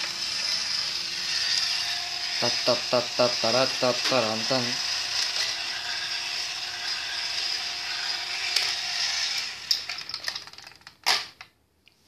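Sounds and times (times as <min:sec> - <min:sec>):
toy motor whirring: 0:00.0 - 0:11.3.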